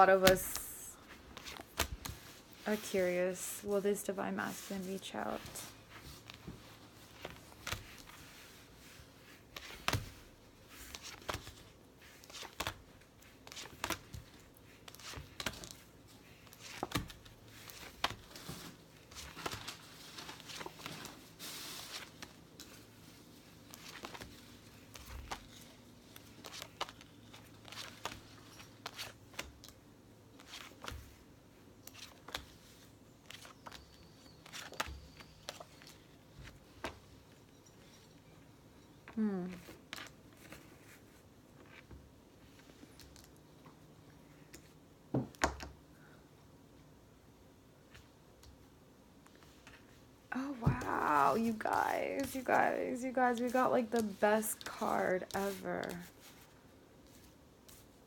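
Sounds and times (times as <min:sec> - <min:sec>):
cards shuffled by hand: 0:07.1 - 0:29.8, 0:50.6 - 0:58.0
papery rustling: 0:50.5 - 0:58.0.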